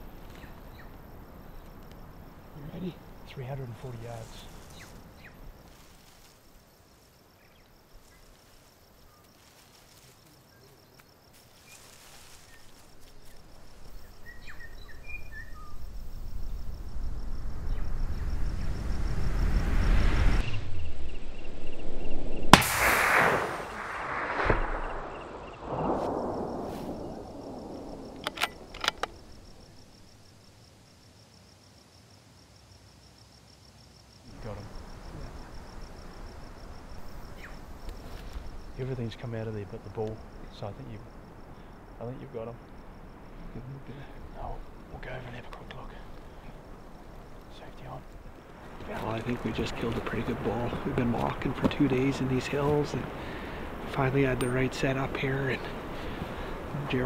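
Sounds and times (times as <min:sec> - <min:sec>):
low rumble: 0:16.0 - 0:30.0
rifle shot with echo: 0:22.5 - 0:29.1
sharp clicks: 0:28.1 - 0:29.2.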